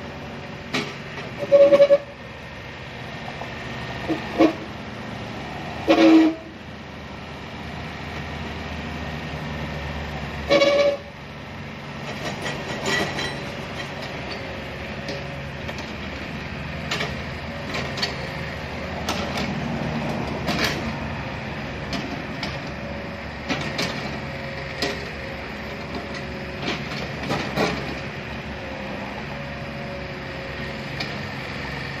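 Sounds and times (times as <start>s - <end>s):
excavator diesel engine running: 0.0s - 32.0s
metallic knocks and clanks: 12.1s - 14.5s.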